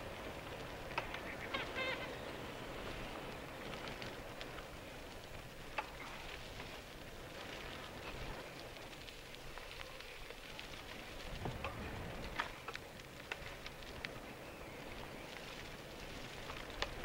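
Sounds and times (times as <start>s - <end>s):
bicycle tyres rolling on dirt trail: 0.0s - 17.0s.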